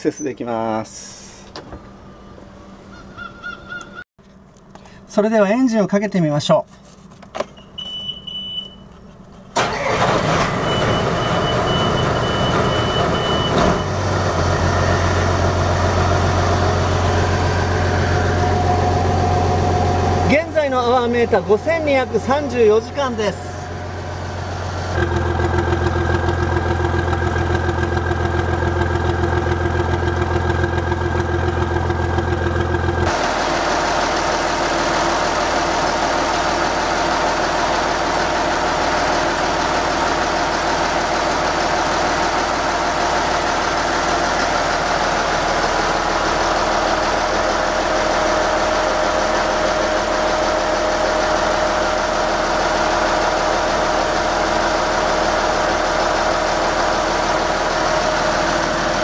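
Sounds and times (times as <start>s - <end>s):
boat engine idling: 15.2s - 59.0s.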